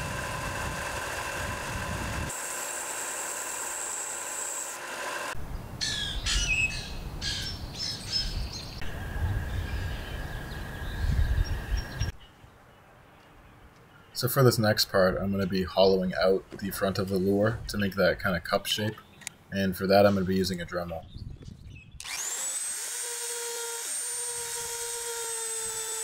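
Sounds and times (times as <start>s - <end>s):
belt sander motor humming: 0.0s - 5.4s, 22.0s - 26.0s
birds chirping: 5.4s - 22.1s.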